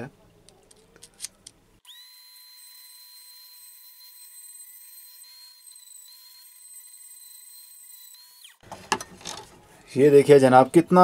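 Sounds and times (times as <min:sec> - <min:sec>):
rotary tool grinding wood: 0:01.9 - 0:09.5.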